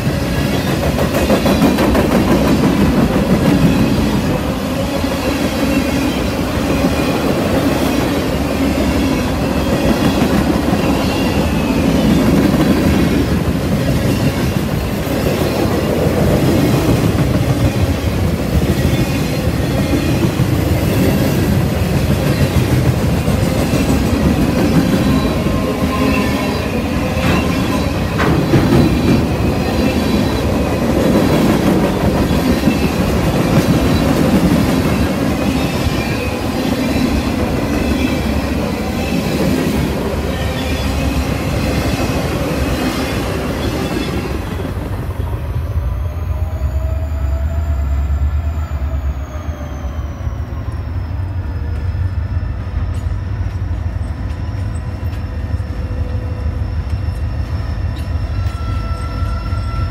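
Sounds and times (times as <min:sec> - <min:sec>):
freight train wheels rumbling: 0:00.0 - 0:59.9
wheels clacking over rail joints: 0:19.8 - 0:36.1.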